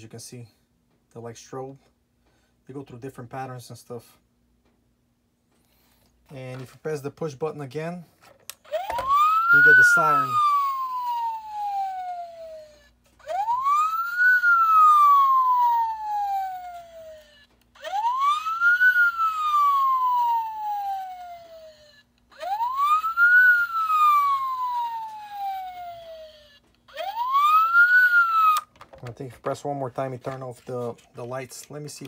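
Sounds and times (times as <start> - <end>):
toy police siren wailing: 8.7 - 28.7.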